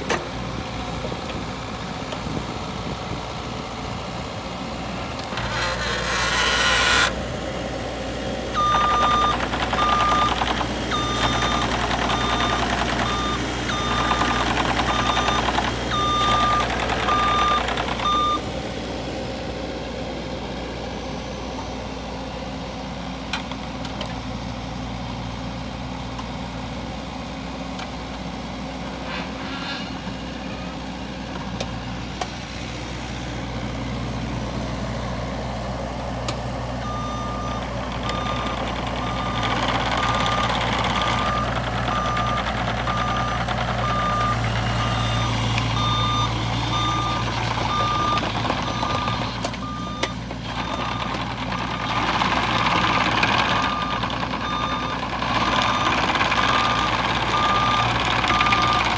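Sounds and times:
diesel engine running: 0.0s - 58.9s
travel alarm beeping: 8.6s - 18.4s, 36.8s - 39.4s, 40.0s - 51.1s, 56.5s - 58.9s.

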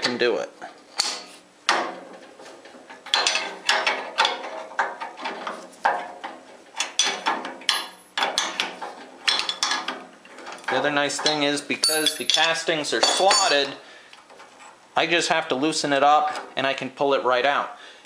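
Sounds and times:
wrench clinking on metal: 3.1s - 4.5s, 6.8s - 8.6s, 10.6s - 13.8s
ringing metal clink: 11.2s - 13.8s.

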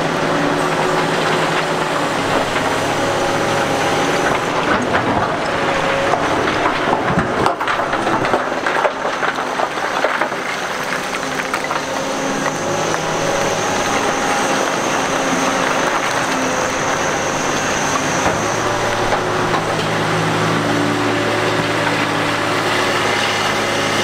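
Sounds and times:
excavator diesel engine running: 0.0s - 24.0s
rock clattering in bucket: 3.9s - 20.4s.

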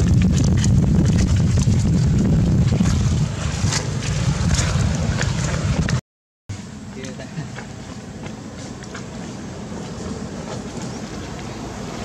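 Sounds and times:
wind buffeting microphone: 0.0s - 6.0s.

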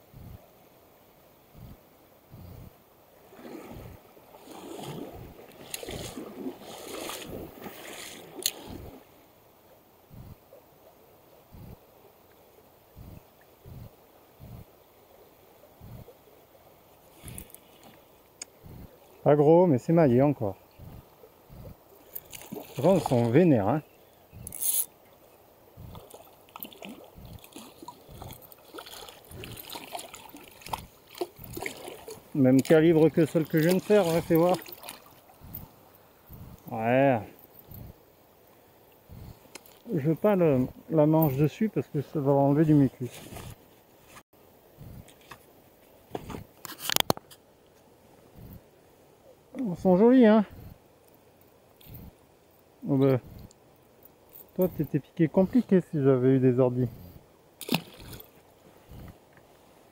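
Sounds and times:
water splashing and sloshing: 2.4s - 9.3s, 13.0s - 23.8s, 24.4s - 44.2s, 57.6s - 59.9s.

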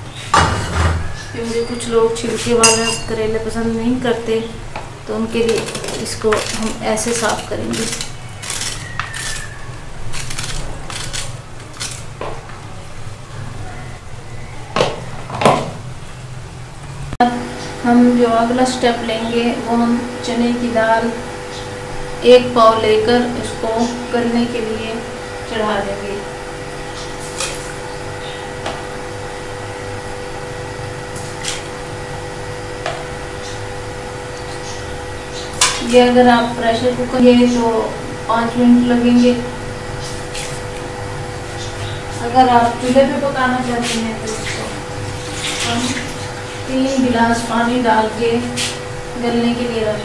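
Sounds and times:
steady low hum: 0.0s - 50.0s
blade scraping gourd skin: 5.3s - 12.1s.

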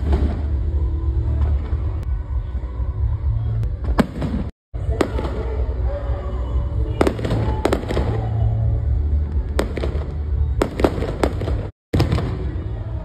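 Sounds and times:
fireworks bangs: 0.0s - 2.1s, 3.8s - 5.8s, 6.8s - 8.7s, 9.4s - 13.0s.

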